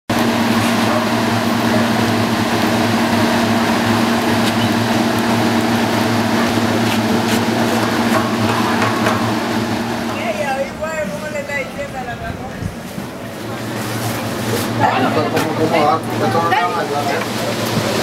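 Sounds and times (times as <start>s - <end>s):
engine running: 0.1s - 18.0s.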